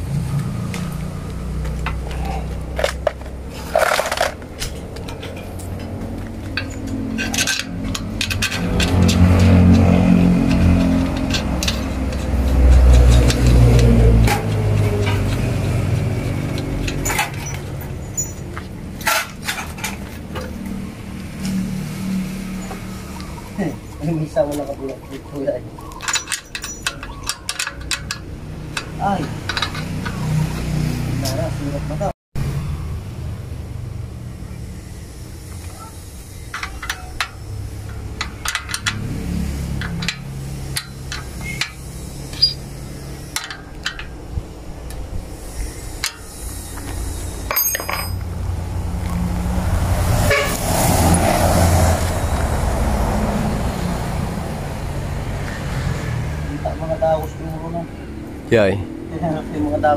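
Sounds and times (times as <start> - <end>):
metal clicks and knocks: 1.7 - 20.6, 25.9 - 30.8, 36.5 - 42.6, 43.3 - 45.1, 47.5 - 48.4
wrench clinking on metal: 3.7 - 13.9, 25.9 - 30.3, 36.5 - 39.1, 39.7 - 42.6, 47.4 - 48.3.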